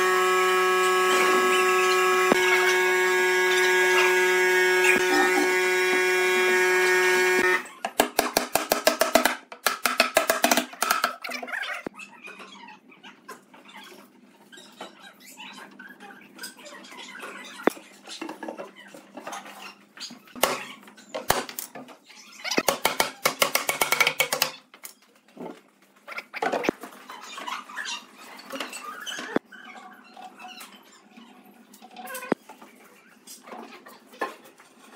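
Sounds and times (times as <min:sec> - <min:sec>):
steady humming tone: 0:00.0 - 0:07.7.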